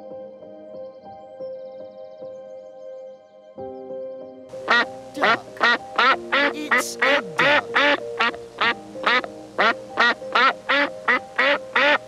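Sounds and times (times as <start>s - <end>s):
background music: 0.0s - 12.0s
duck quacking: 4.7s - 12.0s.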